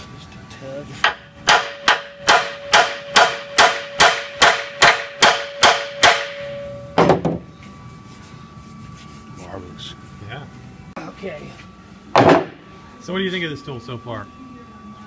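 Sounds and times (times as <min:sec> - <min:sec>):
hammer ringing on steel: 0:01.0 - 0:07.1.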